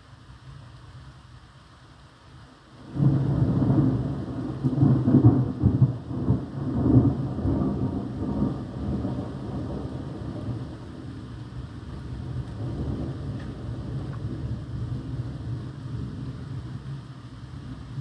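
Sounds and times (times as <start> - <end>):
thunder rolling: 2.9 - 16.9.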